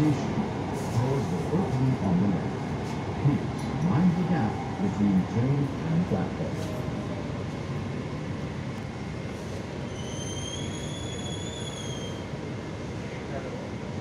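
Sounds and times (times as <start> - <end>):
train cabin noise: 0.0 - 14.0
high-pitched brake squeal: 9.8 - 12.3.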